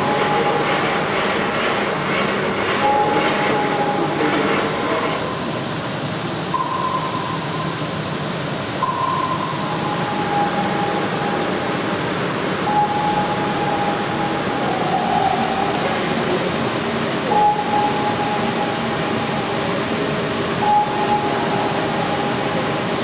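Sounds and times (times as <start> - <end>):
rumbling hall ambience: 0.0 - 23.0
long held tones: 6.4 - 16.6, 17.2 - 23.0.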